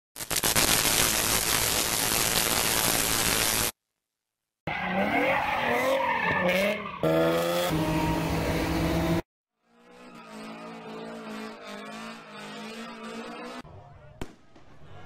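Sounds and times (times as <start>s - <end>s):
car engine at high revs: 5.7s - 9.2s, 9.8s - 13.6s.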